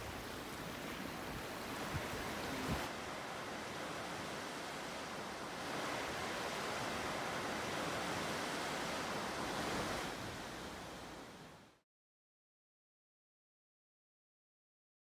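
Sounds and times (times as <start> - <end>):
river water rushing over rapids: 0.0 - 11.8.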